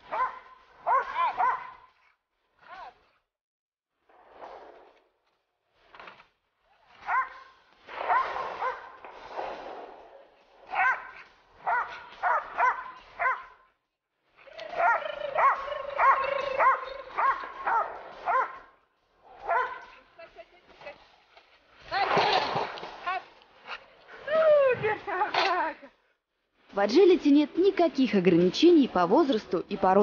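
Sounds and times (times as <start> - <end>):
dog barking: 0.0 - 1.9, 7.0 - 9.0, 10.7 - 13.6, 14.8 - 18.7, 19.4 - 20.0.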